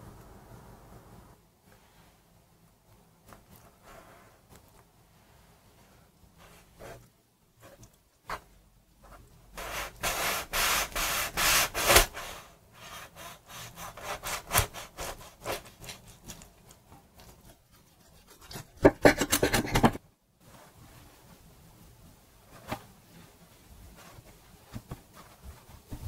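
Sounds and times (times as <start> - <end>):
knife sawing through bread: 9.6 - 16.4.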